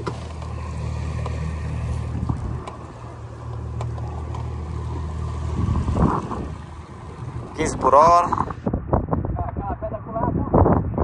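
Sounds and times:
water rushing: 0.0 - 8.7
motorboat engine humming: 0.0 - 9.6
wind: 0.0 - 11.0.

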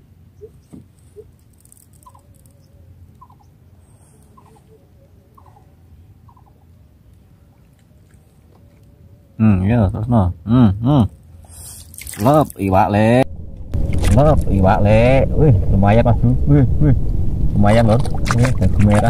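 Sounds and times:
small animal chirping: 0.4 - 3.6, 4.2 - 4.8, 5.4 - 5.7, 6.3 - 6.6
low rumble: 12.7 - 19.0.

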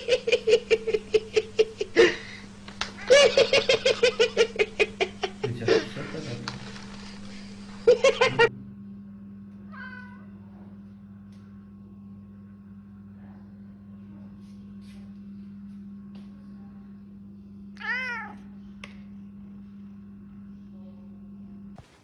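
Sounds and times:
rapid high-pitched laughter: 3.0 - 5.5, 7.8 - 8.5
faint cat meow: 9.7 - 10.4, 17.8 - 18.5.

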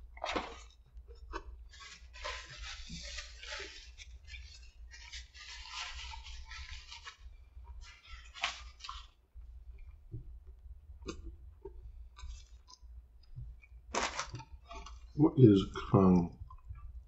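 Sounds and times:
person chewing crispy food: 0.2 - 9.2, 11.0 - 15.2.

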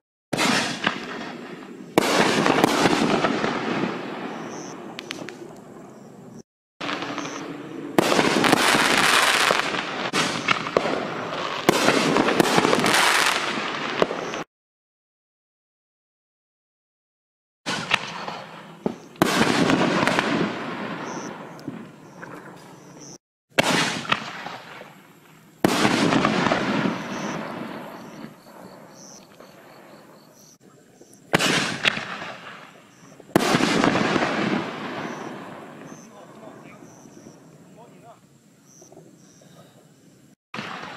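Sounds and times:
firework sharp report: 0.3 - 5.9, 6.8 - 14.5, 17.7 - 29.9, 31.3 - 38.2
firework shell crackling: 6.8 - 14.5, 23.5 - 29.7, 31.3 - 37.0.

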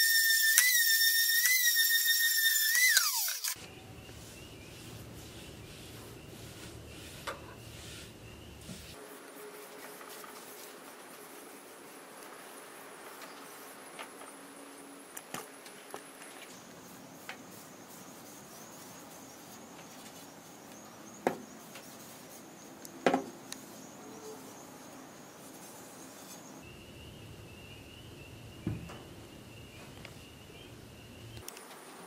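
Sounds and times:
rag wiping wooden paddle: 4.0 - 13.7.

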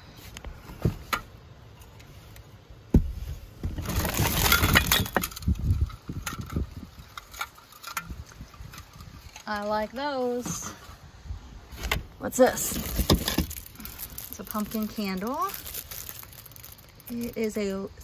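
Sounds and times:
crinkly rustling: 3.2 - 11.0, 11.7 - 18.0.

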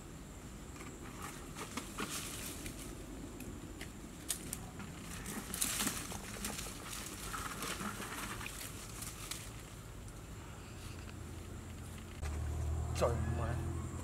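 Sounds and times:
brush rustling and snapping: 0.8 - 10.2.

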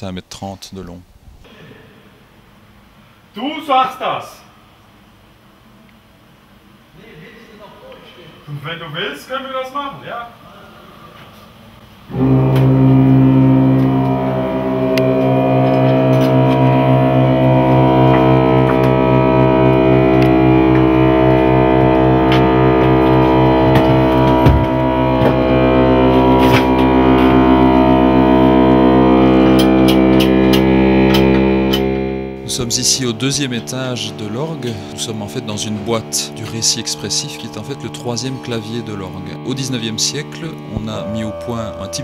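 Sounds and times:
pipe organ chord: 12.1 - 42.0.

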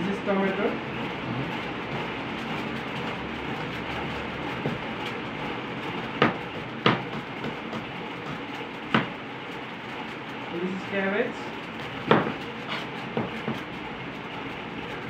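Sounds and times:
steady background noise: 0.0 - 15.0
knife knocking on plastic board: 6.2 - 9.2, 12.0 - 12.4.

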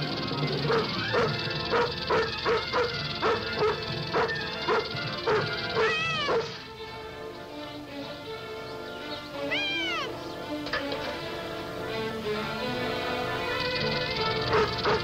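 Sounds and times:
background music: 0.0 - 15.0
dog barking rapidly: 0.6 - 6.6, 14.4 - 15.0
dog yelping: 0.6 - 6.6, 9.5 - 10.2, 14.5 - 15.0.

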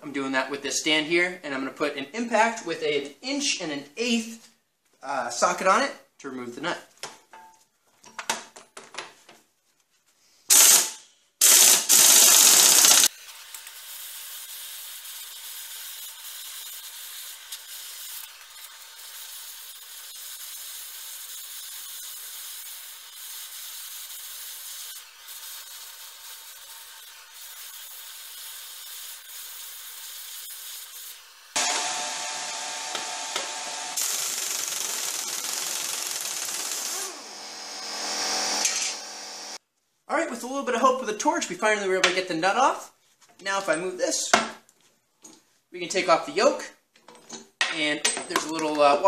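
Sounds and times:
impact wrench bursts: 10.5 - 39.6
propane torch hissing: 11.6 - 31.6.

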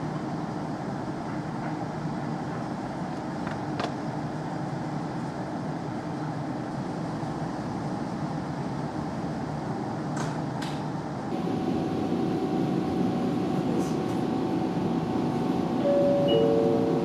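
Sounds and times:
electric train equipment humming: 11.0 - 17.0.

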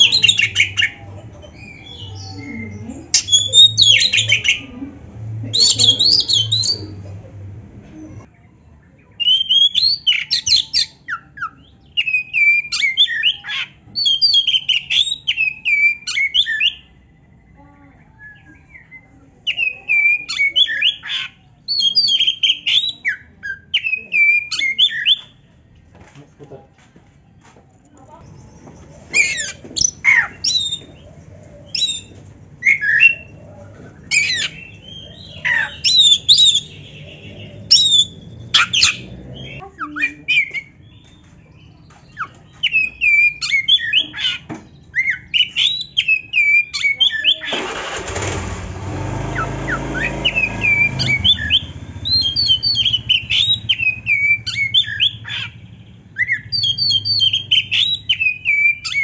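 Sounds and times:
passing motor vehicle: 0.0 - 8.3, 28.2 - 41.8, 47.5 - 59.0
bird whistling and chirping: 1.6 - 4.6, 5.6 - 6.9, 9.2 - 16.9, 18.1 - 25.3, 29.1 - 31.0, 31.6 - 33.3, 34.1 - 41.1, 42.1 - 47.5, 49.4 - 59.0.

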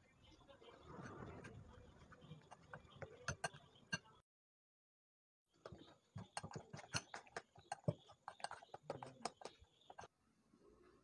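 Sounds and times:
spoon scraping glass bowl: 1.0 - 4.1, 5.7 - 10.1.

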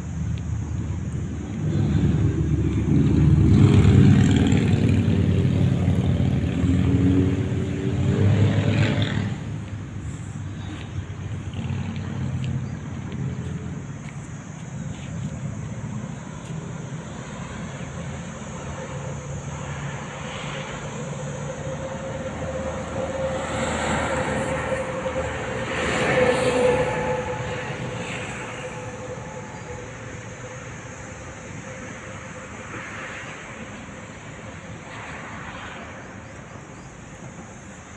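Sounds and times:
passing motor vehicle drone: 0.0 - 37.4.

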